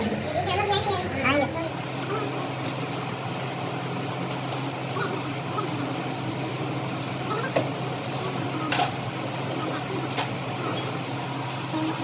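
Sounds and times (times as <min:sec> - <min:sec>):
machinery electric hum: 0:00.0 - 0:12.0.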